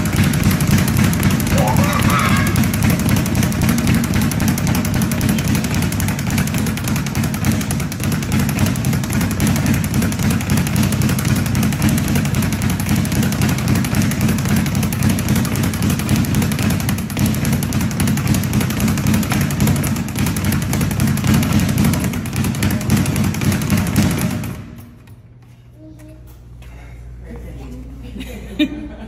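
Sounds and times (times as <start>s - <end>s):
speed bag rattling thuds: 0.0s - 25.0s.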